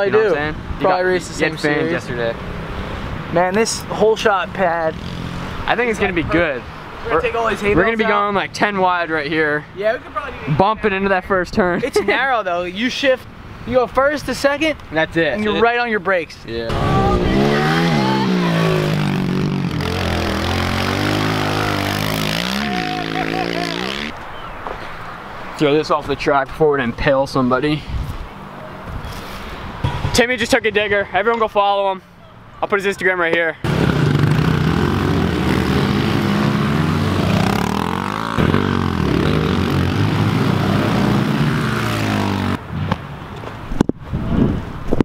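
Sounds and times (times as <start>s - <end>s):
pit bike engines revving: 0.0s - 10.1s, 16.6s - 24.3s, 33.6s - 42.6s.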